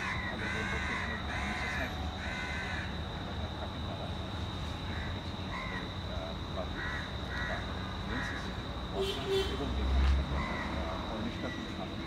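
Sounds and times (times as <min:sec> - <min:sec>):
crows cawing: 0:00.0 - 0:03.1, 0:04.8 - 0:06.0, 0:06.7 - 0:08.6, 0:10.4 - 0:11.6.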